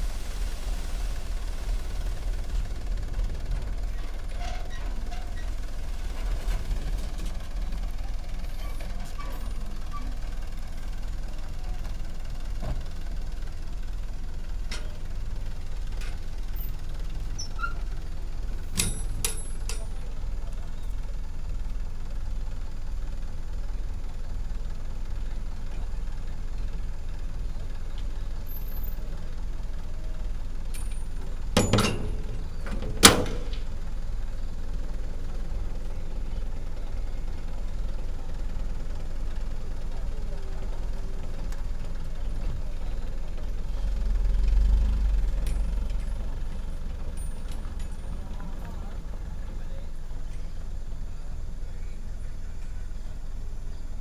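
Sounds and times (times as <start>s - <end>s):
diesel engine running: 0.0s - 54.0s
sharp metal clanks: 18.8s - 20.0s, 30.8s - 33.6s.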